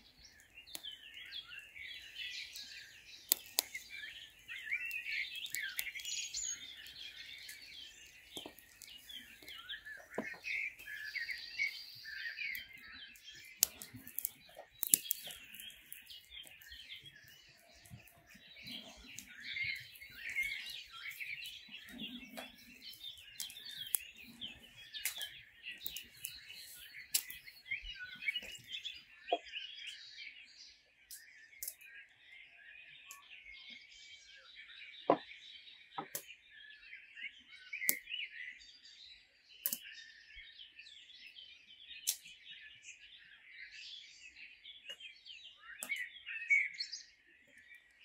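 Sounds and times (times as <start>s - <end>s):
birds chirping and singing: 0.0s - 48.0s
dried fish tearing with crackling snaps: 0.1s - 28.8s, 39.6s - 39.9s.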